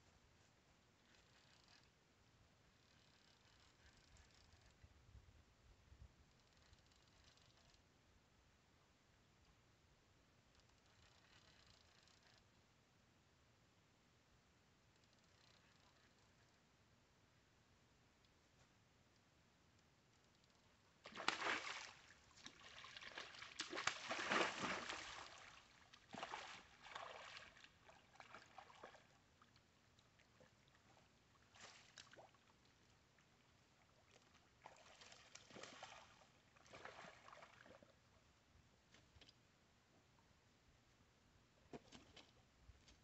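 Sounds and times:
fish splashing in water: 21.1s - 27.6s.

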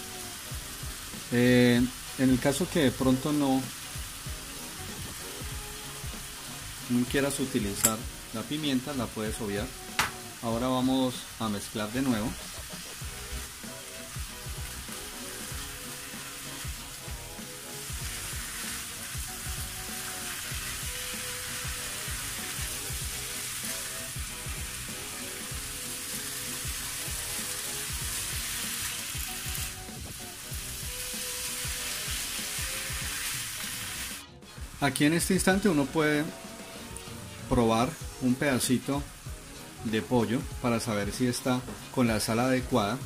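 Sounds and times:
chicken sizzling in a frying pan: 0.0s - 43.0s.

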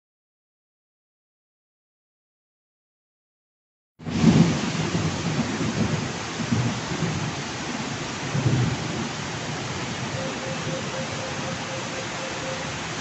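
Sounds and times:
heavy rain falling: 4.0s - 13.0s
rainwater cascading over wall: 4.0s - 13.0s.

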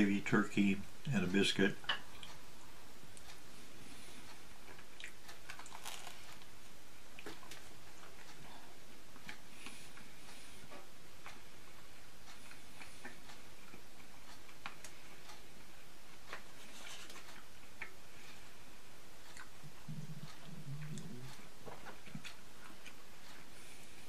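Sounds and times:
steady background hiss: 0.0s - 24.0s
chewing: 4.6s - 6.5s, 19.2s - 23.5s.

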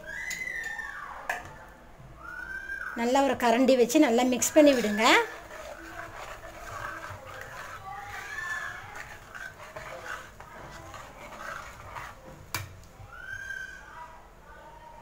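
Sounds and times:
ladle stirring curry in pot: 3.3s - 13.1s.

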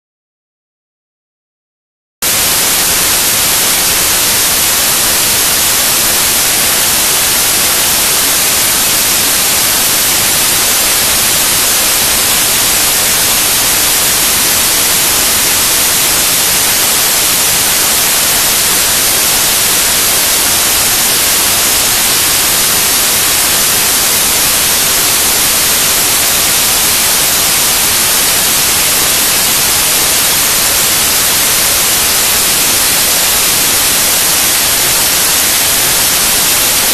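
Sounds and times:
loud static hiss: 2.2s - 36.9s.

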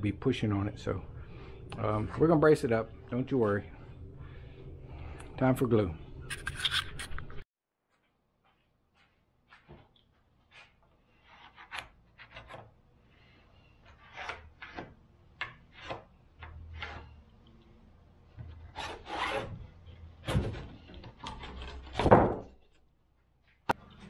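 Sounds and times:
wood scraping on wood: 13.8s - 17.2s, 18.4s - 22.1s.

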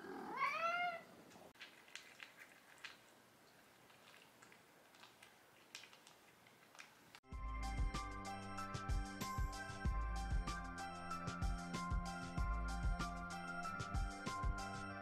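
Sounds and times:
cat meowing: 0.1s - 1.1s
cat crunching dry kibble: 1.6s - 7.2s.

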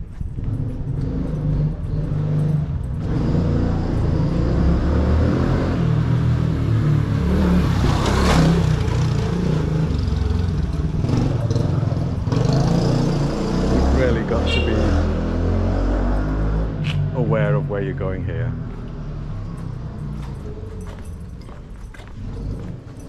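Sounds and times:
motorbike engine revving: 0.2s - 17.6s.

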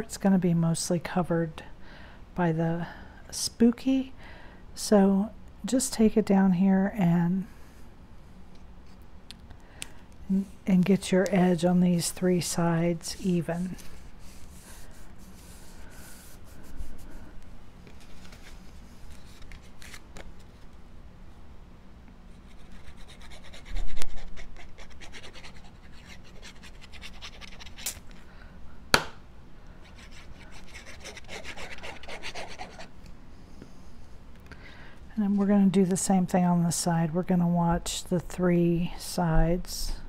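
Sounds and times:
paper rustling and scraping: 17.8s - 20.7s.

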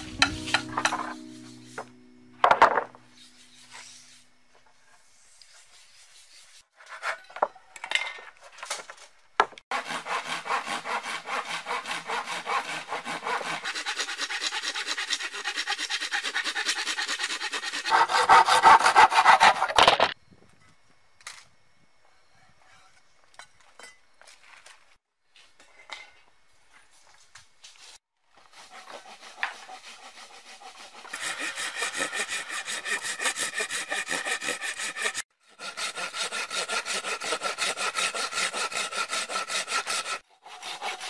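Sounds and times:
hand saw cutting wood: 9.7s - 20.0s, 28.3s - 41.0s.

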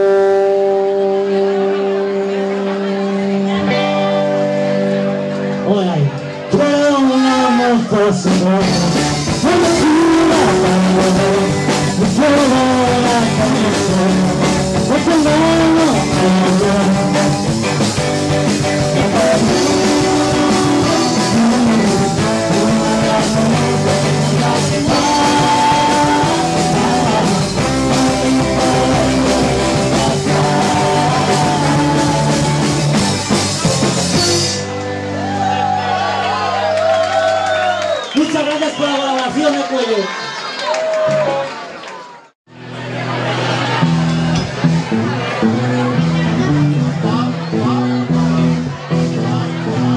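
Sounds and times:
trombone: 0.0s - 2.6s
electric guitar: 0.0s - 38.0s, 42.5s - 49.9s
live rock and roll band: 0.0s - 39.0s, 42.6s - 49.9s
person singing: 6.5s - 34.4s.

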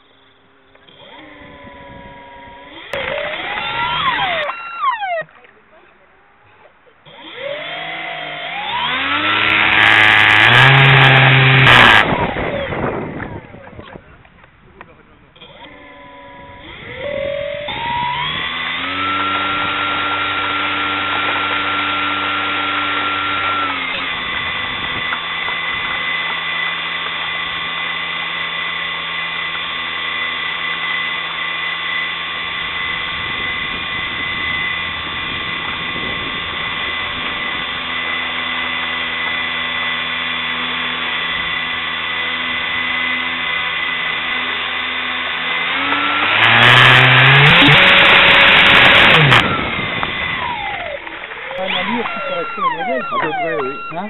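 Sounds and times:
electric motor high whine: 0.0s - 5.4s, 7.0s - 13.9s, 15.2s - 54.0s.

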